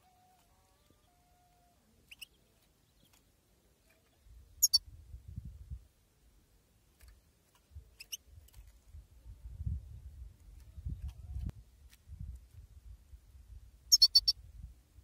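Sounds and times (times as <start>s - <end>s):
bird giving sharp chirps: 4.6s - 4.8s, 13.9s - 14.4s.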